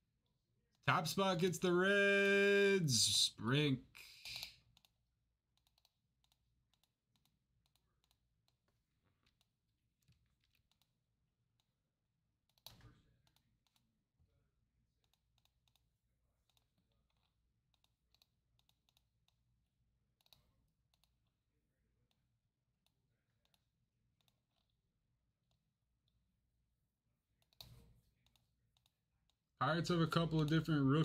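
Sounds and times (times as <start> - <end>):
mouse and keyboard clicks: 4.2 - 11.0, 12.5 - 13.9, 15.0 - 19.4, 20.2 - 21.2, 27.4 - 29.4.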